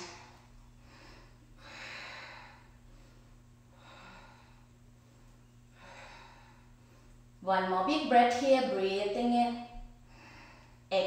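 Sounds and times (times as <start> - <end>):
woman breathing: 0.0 - 7.4, 9.9 - 10.9
faint room tone hum: 0.0 - 11.0.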